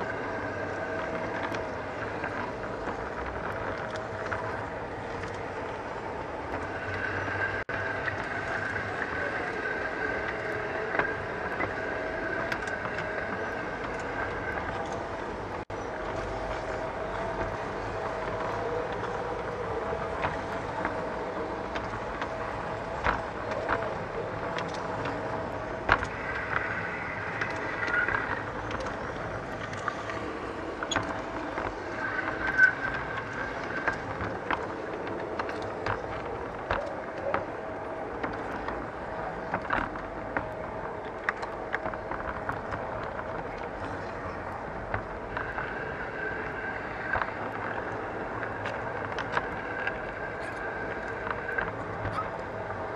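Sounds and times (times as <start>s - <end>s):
wheels clicking over track: 0.0s - 52.9s
high squeals: 26.0s - 34.6s.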